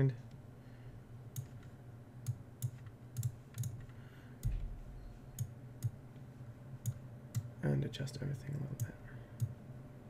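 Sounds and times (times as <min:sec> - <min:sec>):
steady low hum: 0:00.0 - 0:10.0
computer mouse clicks: 0:01.3 - 0:04.5, 0:06.8 - 0:07.5, 0:08.8 - 0:09.6.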